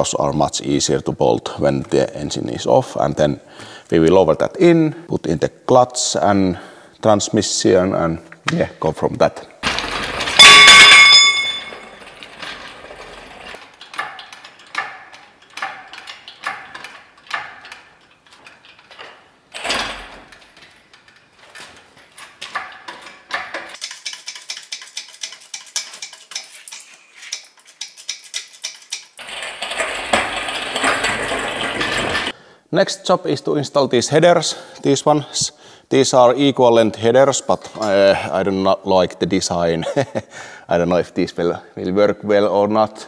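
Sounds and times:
engine hoist chain clicking: 0:09.7 - 0:32.4.

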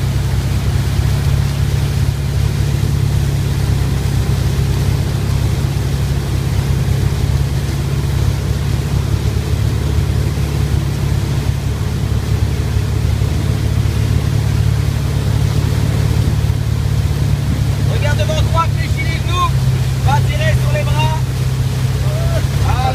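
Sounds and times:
boat engine drone: 0:00.0 - 0:22.9
water and spray rushing: 0:00.0 - 0:22.9.

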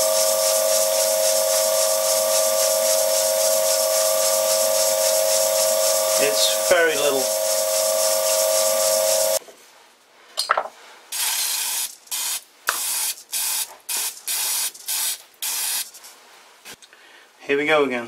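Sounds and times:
aerosol spray hissing bursts: 0:00.0 - 0:09.4, 0:11.1 - 0:16.0.

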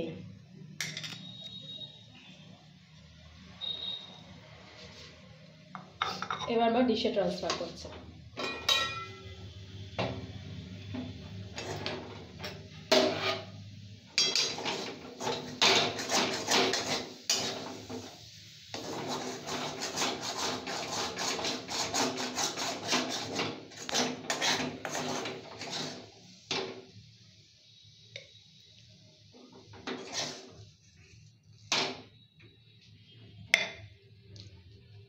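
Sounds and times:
metal spatula scraping a pan: 0:11.5 - 0:13.6, 0:14.2 - 0:26.8, 0:29.5 - 0:31.2.

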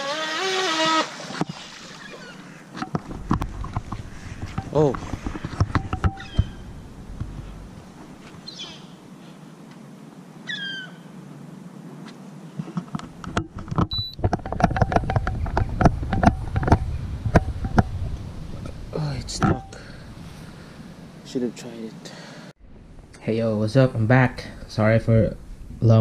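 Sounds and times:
low outdoor hiss: 0:00.0 - 0:14.4, 0:15.8 - 0:26.0
microphone handling knocks: 0:02.8 - 0:08.4, 0:12.8 - 0:19.8
wind rumble on microphone: 0:03.0 - 0:08.2, 0:13.1 - 0:20.4
gull calls: 0:06.2 - 0:06.7, 0:10.5 - 0:11.1.

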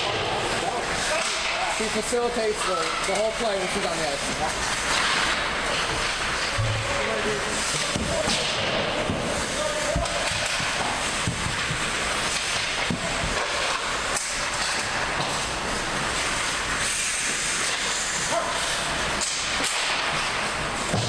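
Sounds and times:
skate blades scraping ice: 0:00.0 - 0:21.0.

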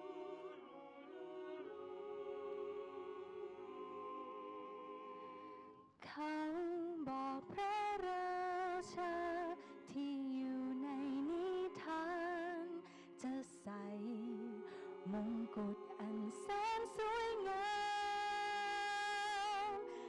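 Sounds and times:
choir singing: 0:00.0 - 0:05.9, 0:08.0 - 0:20.0
solo voice singing with vibrato: 0:06.1 - 0:20.0.

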